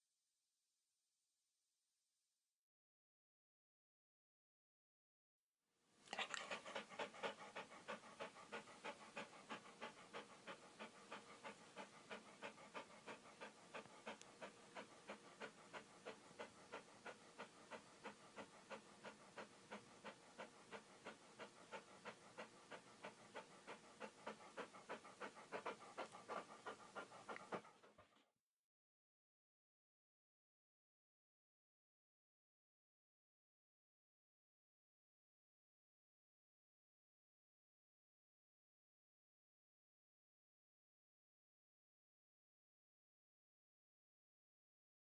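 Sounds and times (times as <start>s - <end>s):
dog panting: 6.1s - 28.3s.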